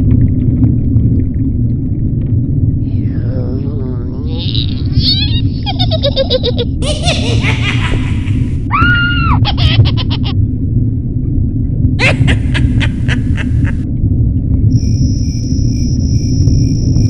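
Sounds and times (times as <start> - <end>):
low rumbling drone: 0.0 - 17.0
cackling monster calls: 2.9 - 5.6.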